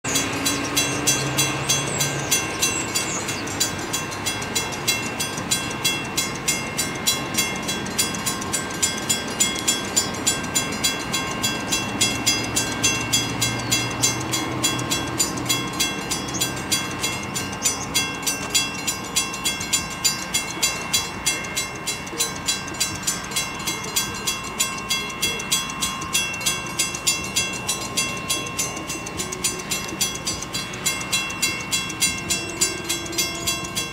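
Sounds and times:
crossing warning bell ringing: 0.0 - 33.9.

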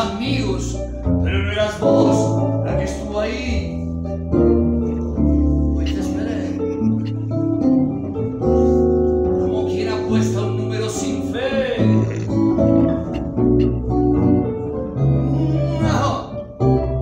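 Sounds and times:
keyboard: 0.0 - 17.0
sustained bass notes: 0.0 - 17.0
electric guitar blues: 10.1 - 17.0.

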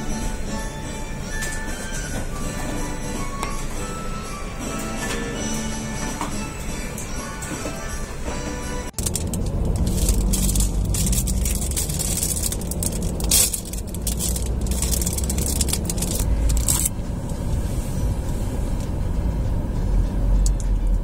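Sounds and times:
low vehicle rumble: 8.9 - 21.0
plastic wrapper crinkling: 9.0 - 16.9.

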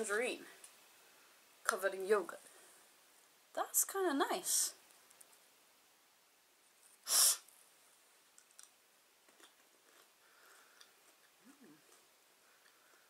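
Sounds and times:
quiet chewing clicks: 8.3 - 13.0.

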